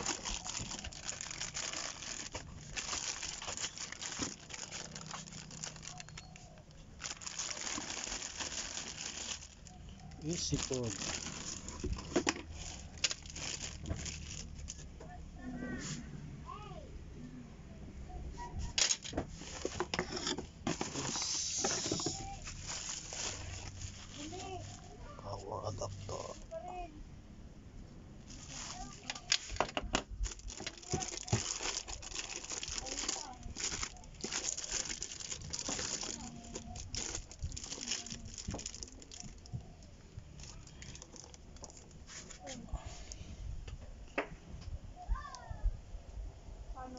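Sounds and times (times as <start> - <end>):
plastic film crinkling: 0.0 - 14.9, 18.8 - 26.6, 28.2 - 42.6
cardboard and plastic rustling: 0.0 - 15.2, 18.4 - 26.8, 28.2 - 43.1.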